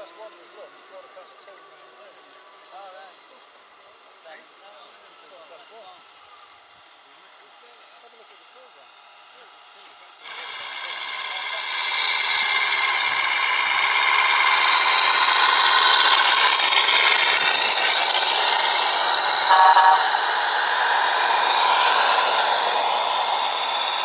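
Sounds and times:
model trucks running: 0:00.0 - 0:24.0
short horn toot: 0:19.5 - 0:20.2.

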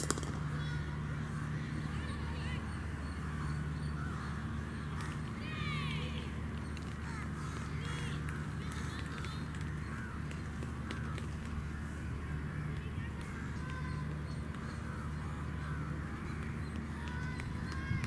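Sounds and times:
distant voices: 0:00.0 - 0:18.0
steady low hum: 0:00.0 - 0:18.0
crows cawing: 0:03.3 - 0:05.1, 0:06.9 - 0:12.4, 0:14.6 - 0:16.4.

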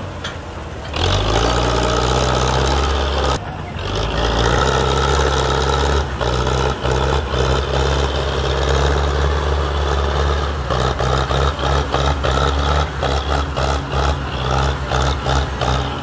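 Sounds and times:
tractor diesel engine labouring: 0:00.0 - 0:16.0.

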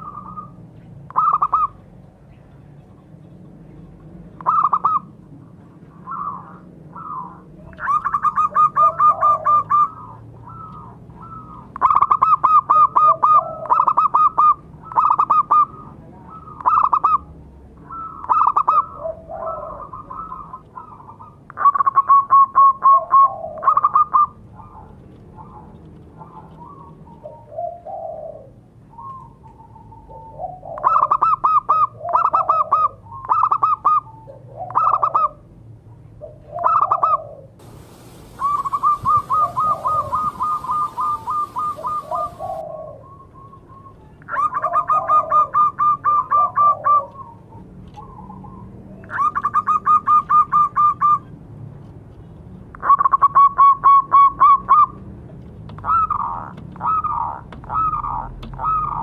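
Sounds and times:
dove cooing: 0:00.0 - 0:01.8, 0:04.4 - 0:05.2, 0:06.0 - 0:17.3, 0:17.9 - 0:35.5, 0:36.2 - 0:51.3, 0:55.8 - 0:59.0.

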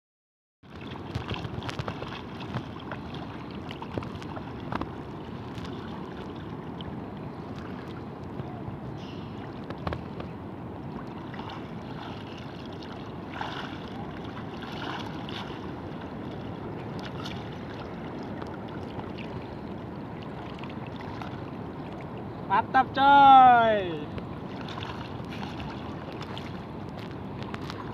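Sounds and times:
sea water sloshing: 0:00.6 - 0:22.5, 0:24.0 - 0:27.9
sharp splashes: 0:11.1 - 0:16.4, 0:24.5 - 0:26.6.

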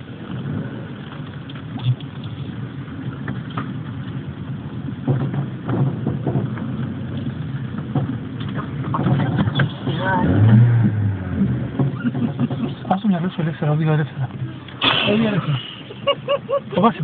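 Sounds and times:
car engine rumble from inside: 0:00.0 - 0:17.0
short knocks and rattles: 0:04.9 - 0:10.0, 0:11.7 - 0:13.3.

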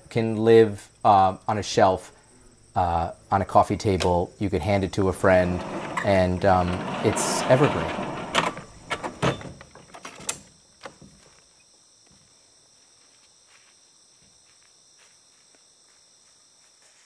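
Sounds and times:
insect chirring: 0:00.0 - 0:06.3
wooden doors knocking shut: 0:05.5 - 0:10.4.

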